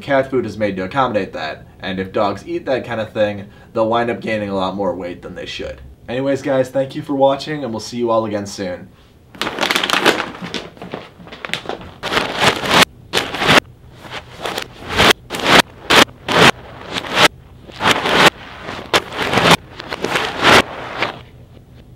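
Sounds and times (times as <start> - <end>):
plastic bags crinkling: 9.3 - 21.2.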